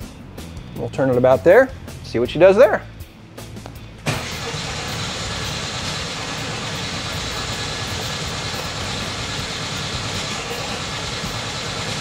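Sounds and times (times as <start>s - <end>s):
car engine starting and running: 3.8s - 12.0s.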